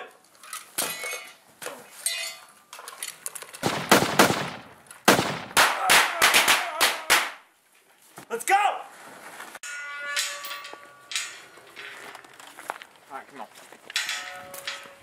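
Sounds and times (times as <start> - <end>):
gunshots: 3.6 - 7.4.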